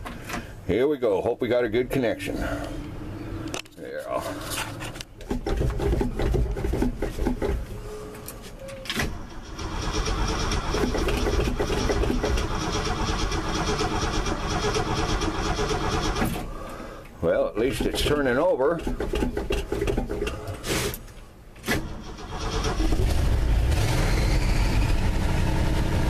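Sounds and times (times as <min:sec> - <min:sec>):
starter cranking engine: 0:05.2 - 0:07.6, 0:09.2 - 0:16.5, 0:17.6 - 0:20.6, 0:21.7 - 0:25.8.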